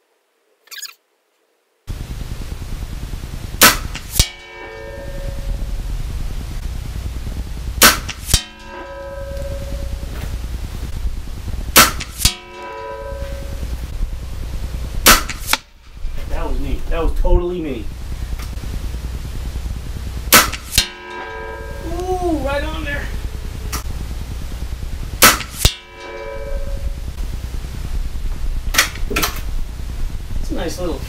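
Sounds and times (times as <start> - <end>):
steady low rumble: 1.9 - 31.0
air rifle shot crack: 3.6 - 4.4, 7.8 - 8.8, 11.7 - 12.4, 15.0 - 15.7, 20.3 - 21.1, 25.2 - 25.8
pellet ringing clang on steel target: 3.6 - 5.6, 7.8 - 10.3, 11.8 - 13.8, 25.2 - 26.9.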